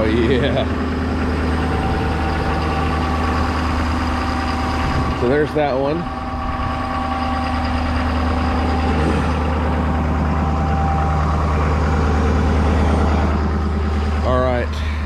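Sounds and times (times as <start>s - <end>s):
truck engine idling: 0.0s - 15.0s.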